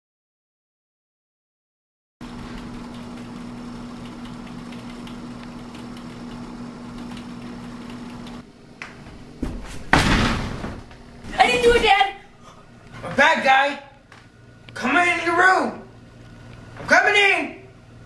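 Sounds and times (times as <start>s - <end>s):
room hum: 2.2s - 18.0s
keyboard typing clicks: 2.3s - 8.4s
thump: 9.4s - 10.8s
loud bang: 9.9s - 10.8s.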